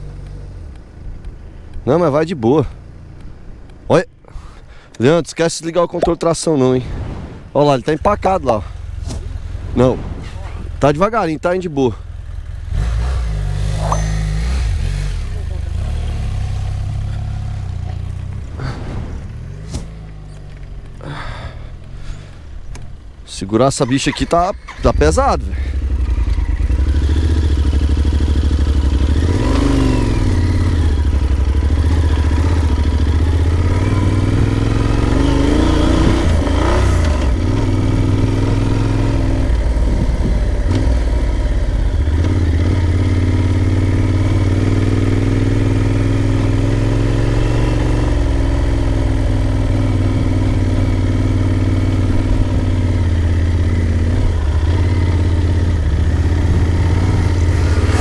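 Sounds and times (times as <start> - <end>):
motorcycle engine revving: 12.0 - 21.3, 24.7 - 58.0.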